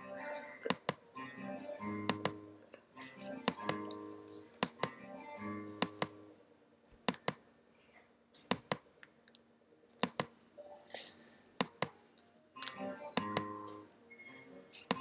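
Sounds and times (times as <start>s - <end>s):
sharp clicks in pairs: 7.0s - 7.4s, 8.4s - 10.5s.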